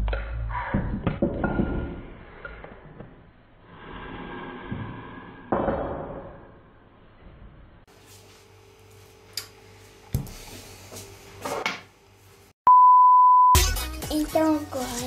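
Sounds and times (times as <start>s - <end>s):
steady test tone beep: 12.7s - 13.6s.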